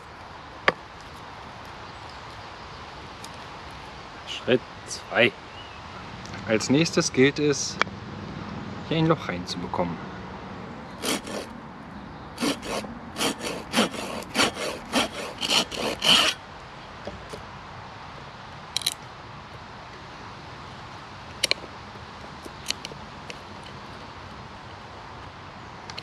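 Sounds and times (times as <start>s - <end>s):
hand saw cutting wood: 11.0s - 11.5s, 12.4s - 16.4s.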